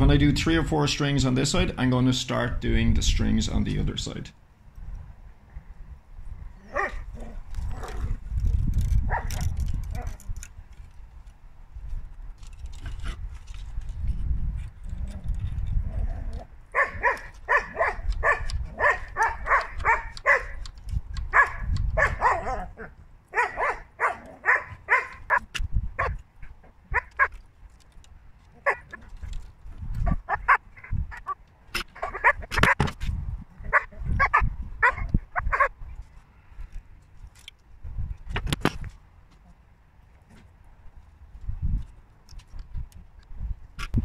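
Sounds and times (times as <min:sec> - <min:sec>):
dog barking: 0:06.7 - 0:07.0, 0:16.8 - 0:20.6, 0:21.3 - 0:22.7, 0:23.4 - 0:25.4, 0:33.7 - 0:35.7.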